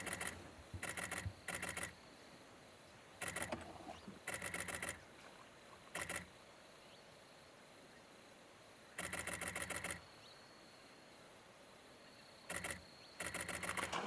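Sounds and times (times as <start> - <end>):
camera shutter clicking in bursts: 0.0 - 2.0, 3.2 - 3.6, 4.3 - 5.0, 6.0 - 6.3, 9.0 - 10.0, 12.5 - 14.0.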